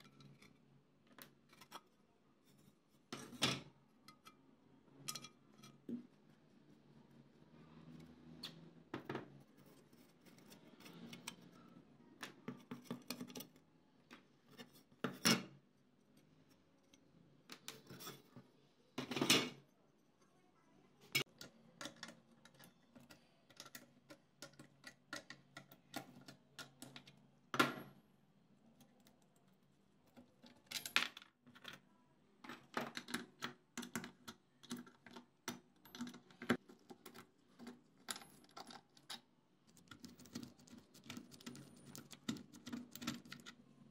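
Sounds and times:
small metal clinks and clicks: 33.8 - 43.6.

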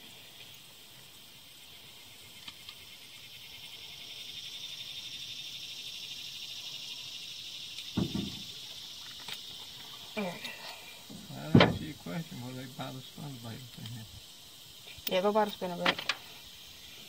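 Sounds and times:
high pulsing insect buzz: 0.0 - 17.0
dull thump: 7.9 - 8.6, 11.1 - 12.1.

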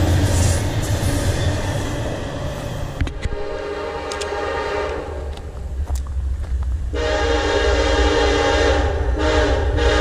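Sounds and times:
locomotive air horn blasts: 3.2 - 5.2, 6.9 - 10.0.

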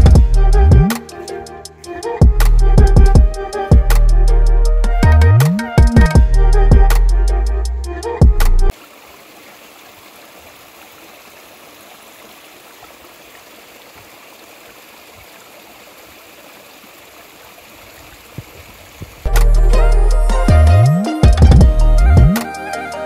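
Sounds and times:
background music: 0.0 - 8.7, 19.3 - 23.0
stream running over rocks: 8.7 - 19.4.

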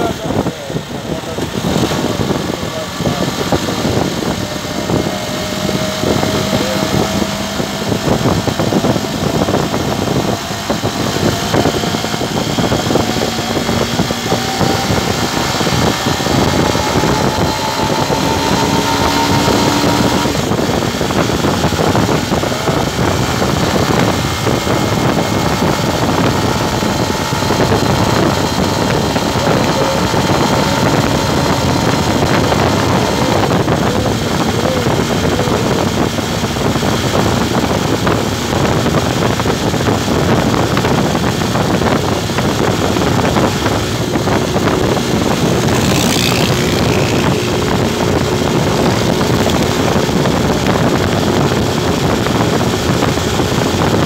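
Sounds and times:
motorcycle engine: 0.0 - 54.0
wind and road noise: 0.0 - 54.0.

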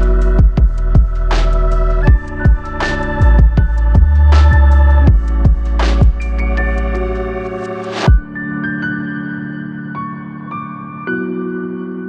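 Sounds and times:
soft ambient music: 0.0 - 12.0.

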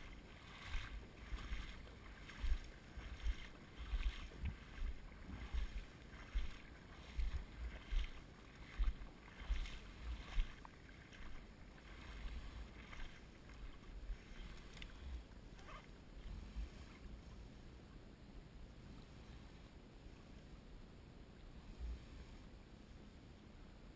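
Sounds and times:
water splashing from wading: 0.0 - 15.3
low irregular rumble: 0.0 - 23.9.

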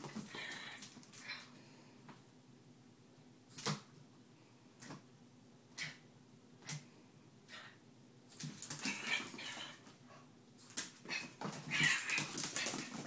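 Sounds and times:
small dogs playing: 8.4 - 13.0.

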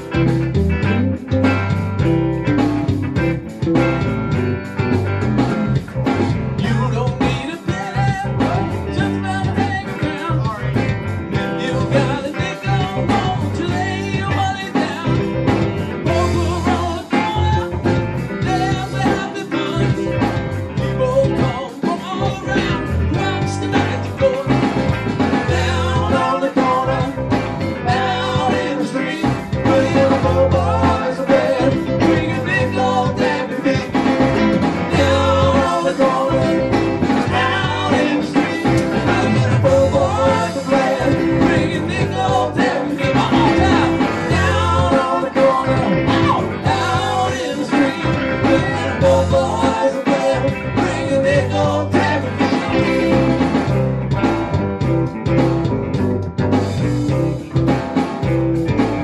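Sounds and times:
blues-rock band playing: 0.0 - 59.0
person singing: 6.6 - 24.8, 25.4 - 53.4.

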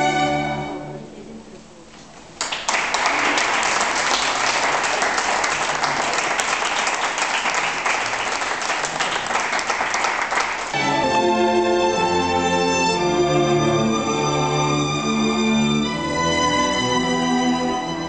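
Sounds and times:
string ensemble playing: 0.0 - 1.4, 10.7 - 18.0
audience applauding: 2.4 - 10.8.

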